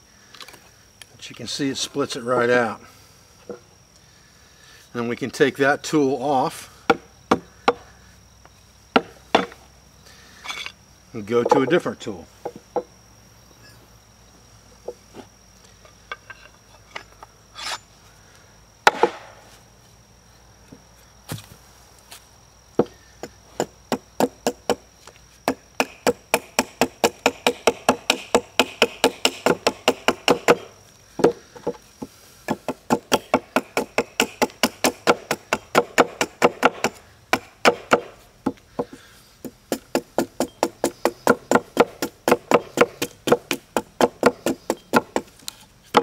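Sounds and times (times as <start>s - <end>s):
high insect buzz: 0.0s - 46.0s
hand tool chopping wood: 25.4s - 46.0s.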